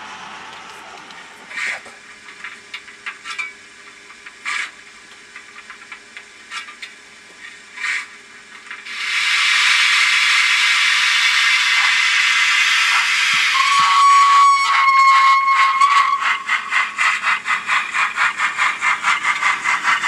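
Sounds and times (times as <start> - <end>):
steam hissing from small speaker: 8.8 - 20.0.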